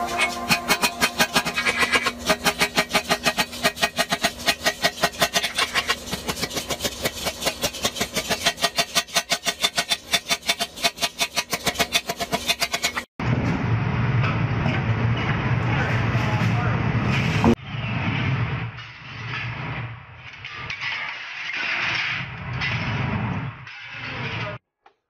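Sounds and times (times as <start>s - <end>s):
hammer beating hot steel: 0.0s - 13.1s.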